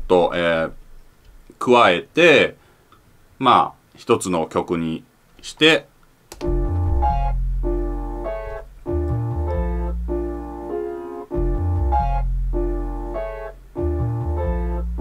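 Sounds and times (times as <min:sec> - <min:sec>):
keyboard sample playing chords: 0:06.4 - 0:15.0
stepping bass line: 0:06.4 - 0:15.0.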